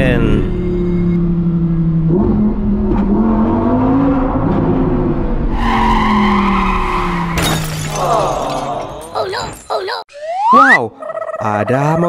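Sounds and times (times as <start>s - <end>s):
tire screech: 5.4s - 7.5s.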